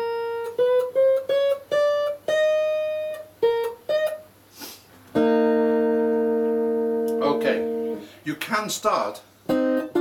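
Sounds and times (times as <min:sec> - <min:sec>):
steel guitar plucked notes: 0:00.0 - 0:04.3, 0:05.1 - 0:08.1, 0:09.4 - 0:10.0.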